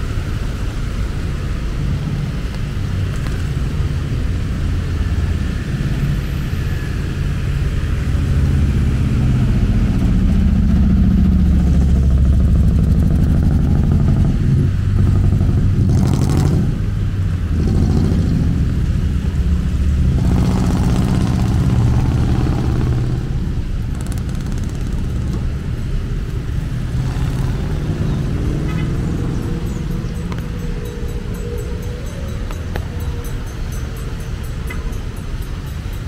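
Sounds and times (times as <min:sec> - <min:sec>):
engines idling in traffic jam: 0:00.0 - 0:36.0
vehicles passing on wet road: 0:00.0 - 0:36.0.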